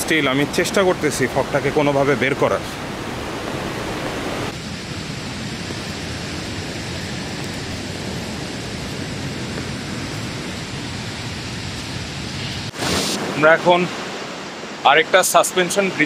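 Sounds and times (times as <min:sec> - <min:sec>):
mountain stream rushing: 0:00.0 - 0:16.0.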